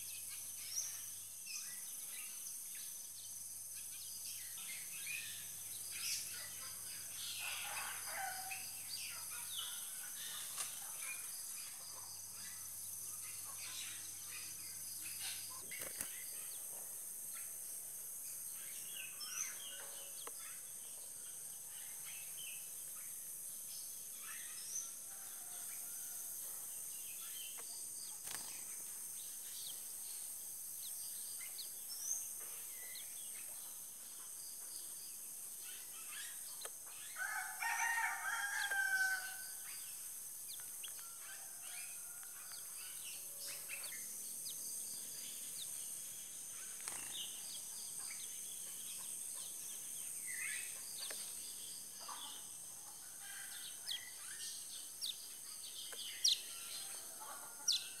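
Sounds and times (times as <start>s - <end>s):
small birds chirping: 0.0s - 58.0s
steady high hiss: 11.2s - 58.0s
rooster crowing: 37.2s - 39.6s.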